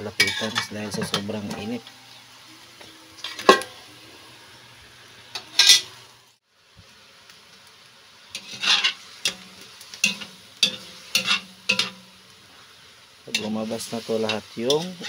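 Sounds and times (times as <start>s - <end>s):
meat sizzling: 0.0s - 15.0s
metal lid clanking: 0.1s - 1.9s, 3.2s - 3.8s, 5.4s - 5.9s, 10.0s - 12.0s
metal spatula scraping wok: 0.2s - 1.8s, 5.4s - 6.0s, 8.3s - 12.1s, 13.3s - 15.0s
spatula tapping wok: 8.4s - 12.1s.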